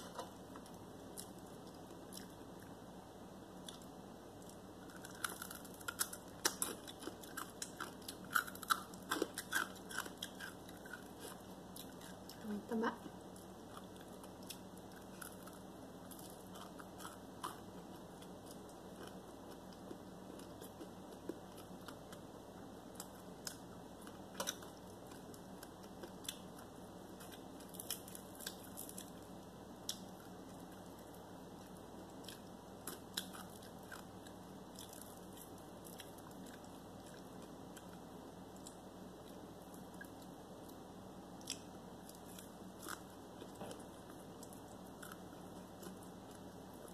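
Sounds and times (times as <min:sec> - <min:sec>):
faint steady hum: 0:00.0 - 0:46.9
food crunching: 0:03.6 - 0:12.4, 0:13.3 - 0:22.3
person chewing: 0:03.6 - 0:12.4, 0:13.4 - 0:22.3.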